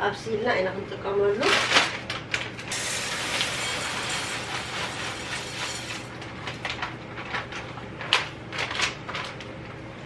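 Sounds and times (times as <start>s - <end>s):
seeds pouring into a bowl: 2.8s - 6.1s.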